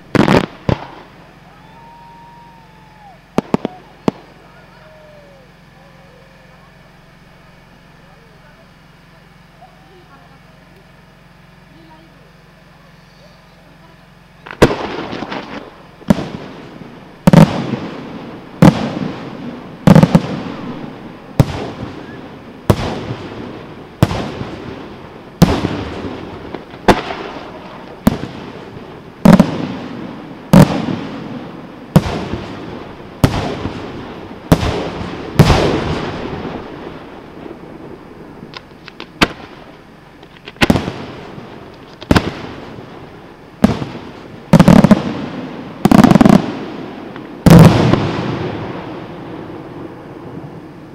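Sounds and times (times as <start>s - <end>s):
firework shells bursting: 0.0s - 1.4s, 2.3s - 4.8s, 14.4s - 50.0s.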